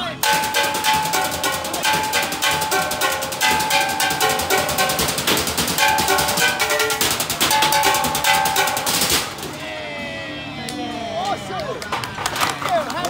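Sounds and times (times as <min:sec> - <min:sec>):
drumsticks beating metal trash cans: 0:00.0 - 0:09.6.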